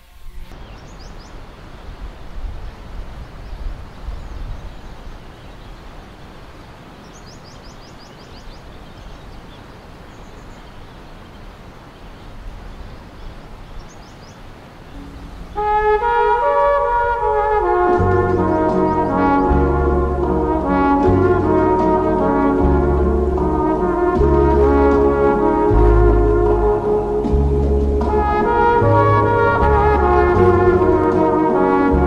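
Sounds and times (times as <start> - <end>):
small birds chirping: 0.2 - 2.1, 3.3 - 15.6
river rushing: 0.5 - 32.0.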